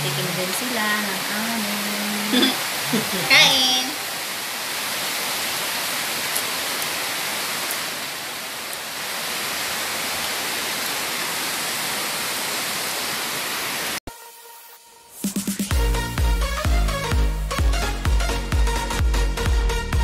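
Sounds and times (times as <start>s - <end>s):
steady hissing noise: 0.0s - 10.4s.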